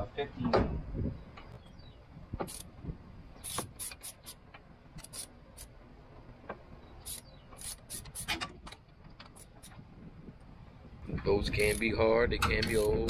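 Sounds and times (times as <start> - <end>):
wrench metallic clicks: 11.5 - 13.0.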